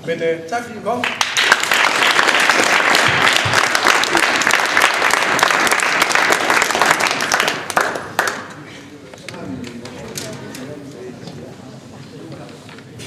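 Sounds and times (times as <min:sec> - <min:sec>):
crowd applauding: 0:01.0 - 0:08.8.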